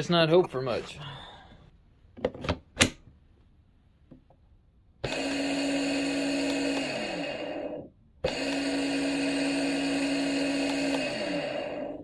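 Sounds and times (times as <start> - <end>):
pump motor humming: 5.0 - 12.0.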